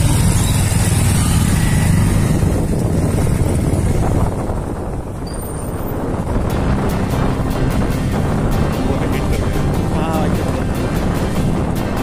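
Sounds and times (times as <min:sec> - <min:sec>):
motorcycle engines rumbling: 0:00.0 - 0:12.0.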